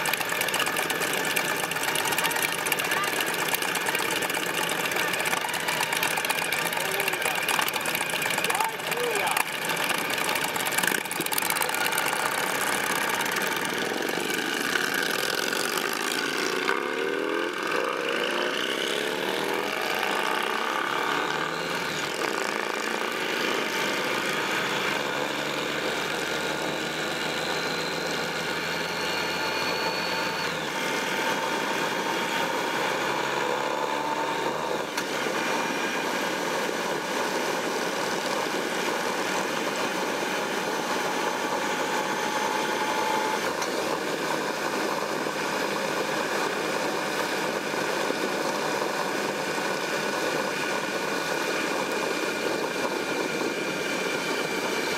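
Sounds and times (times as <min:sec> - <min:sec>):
motorcycle engines accelerating: 0:00.0 - 0:29.3.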